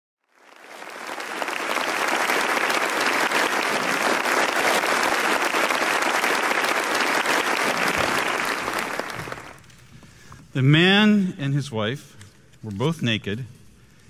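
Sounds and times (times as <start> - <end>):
audience applauding: 0.2 - 9.7.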